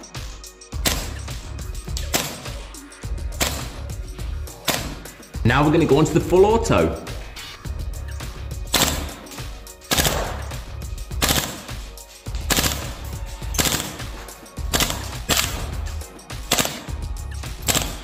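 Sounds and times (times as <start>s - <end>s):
airsoft rifle full auto bursts: 11.2s - 11.7s, 12.5s - 13.0s, 13.6s - 14.1s, 14.7s - 15.7s, 16.5s - 16.9s, 17.6s - 18.0s.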